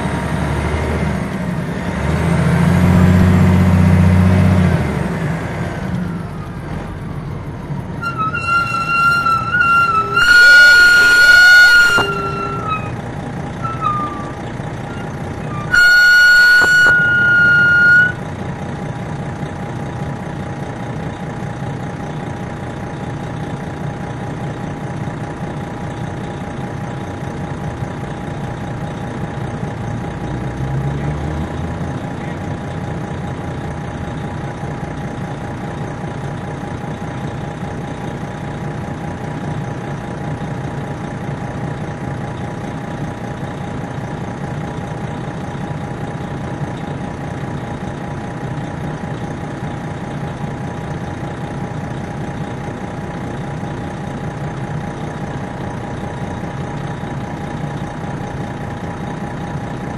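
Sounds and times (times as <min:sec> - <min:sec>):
bus engine rumble with whine: 0:00.0 - 0:59.9
loud horn blasts: 0:08.0 - 0:13.0, 0:13.6 - 0:18.2.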